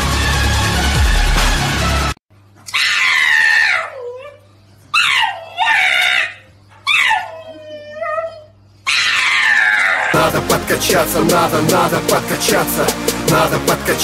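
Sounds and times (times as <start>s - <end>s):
dog screaming wails: 2.7s - 10.2s.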